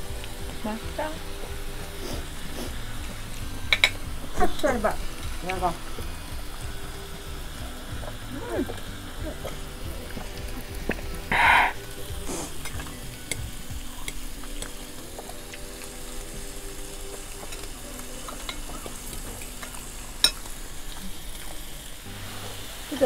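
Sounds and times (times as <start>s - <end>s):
meat sizzling on grill pan: 0.0s - 23.0s.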